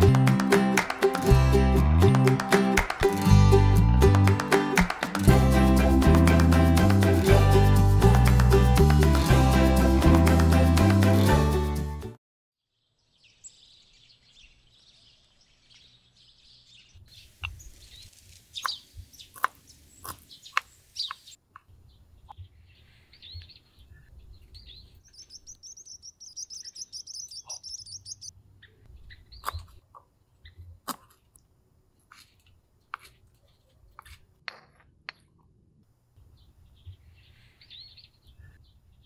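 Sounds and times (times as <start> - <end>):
birds chirping: 12.8 - 29.8, 36.2 - 39.0.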